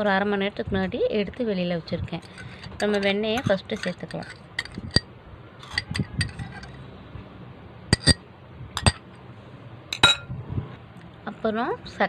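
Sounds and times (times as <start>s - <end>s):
metal spoon clinking on glass bowl: 2.2s - 5.0s, 5.6s - 6.8s, 7.9s - 8.2s, 8.8s - 9.0s, 10.0s - 10.3s.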